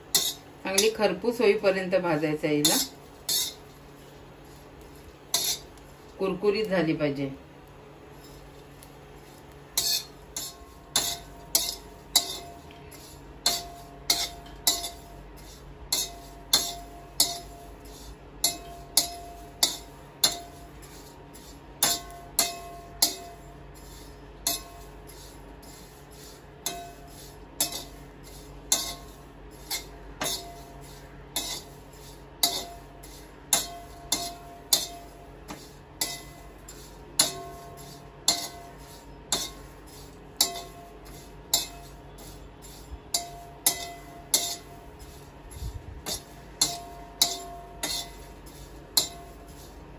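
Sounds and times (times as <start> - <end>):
metal spatula tapping metal pan: 0.1 - 1.0, 2.6 - 3.6, 5.3 - 5.6, 9.8 - 12.6, 13.4 - 15.1, 15.9 - 17.7, 18.4 - 20.7, 21.8 - 23.5, 24.4 - 24.9, 26.6 - 28.0, 28.7 - 29.1, 29.7 - 30.7, 31.3 - 31.8, 32.4 - 39.7, 40.4 - 44.8, 46.1 - 48.3, 49.0 - 49.4.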